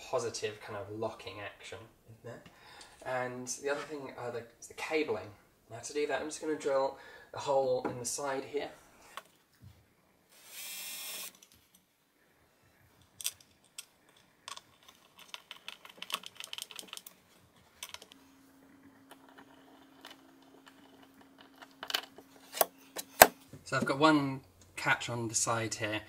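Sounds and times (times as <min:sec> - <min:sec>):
cordless drill burst: 0:10.4 - 0:11.4.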